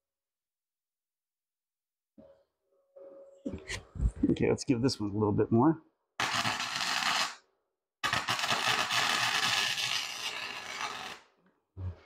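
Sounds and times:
welding arc crackling: 6.2s - 7.4s, 8.0s - 11.2s.

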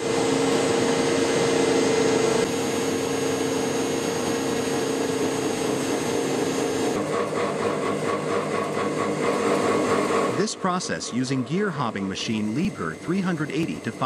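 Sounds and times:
machine whirring and humming: 0.0s - 14.0s
held machine tones: 2.4s - 7.0s, 10.4s - 14.0s.

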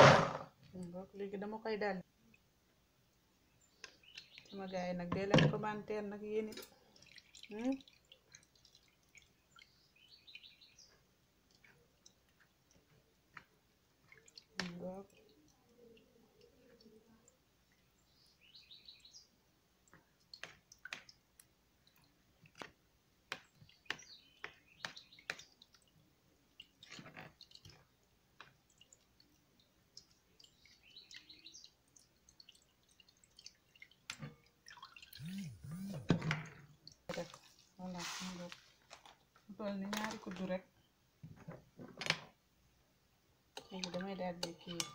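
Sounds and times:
handling sounds: 37.8s - 39.3s.

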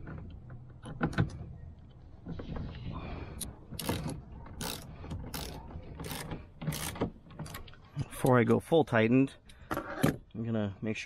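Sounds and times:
ratchet pawl clicking: 3.8s - 7.6s.

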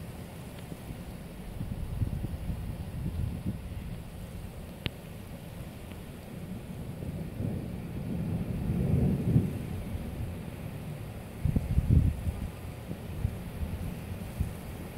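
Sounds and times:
rain: 0.0s - 14.9s
gusty wind buffeting microphone: 0.7s - 14.9s.

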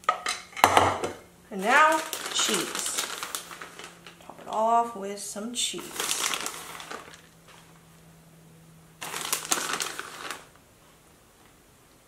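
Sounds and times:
plastic bag crinkling: 1.5s - 4.6s, 5.7s - 7.8s, 9.0s - 10.6s.

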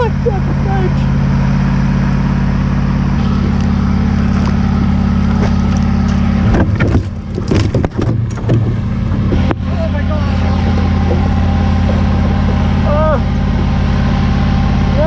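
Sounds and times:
boat motor humming: 0.0s - 15.0s
fish thrashing and splashing: 3.2s - 9.5s.

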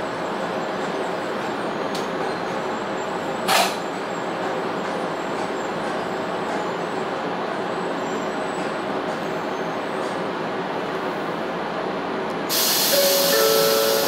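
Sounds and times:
train running rumble: 0.0s - 14.0s
brief loud hiss: 12.5s - 14.0s.

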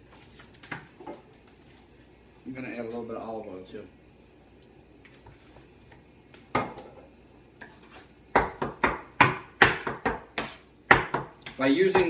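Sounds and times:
bench scraper chopping on wood: 8.3s - 12.0s.

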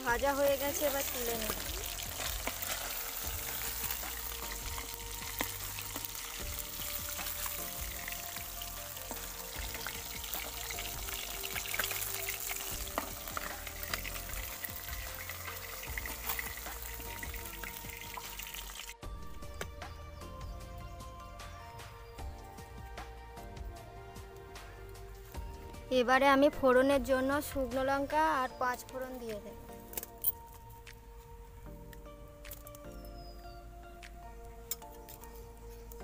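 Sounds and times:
fish sizzling in hot oil: 0.0s - 19.0s.

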